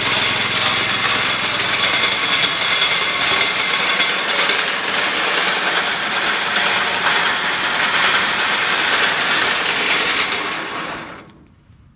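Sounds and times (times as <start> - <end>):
grain rattling and pouring: 0.0 - 11.0
small gas engine running: 0.0 - 11.4.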